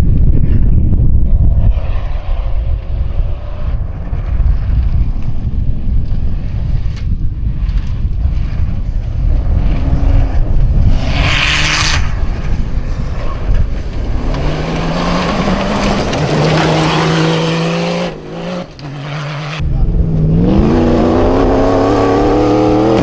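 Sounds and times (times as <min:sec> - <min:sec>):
high-revving car engine: 0:14.2 - 0:23.0.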